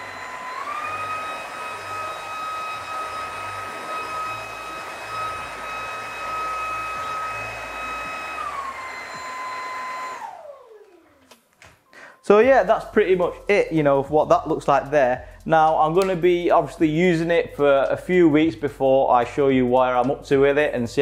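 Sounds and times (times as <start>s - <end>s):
vacuum cleaner motor whine: 0.0s - 11.3s.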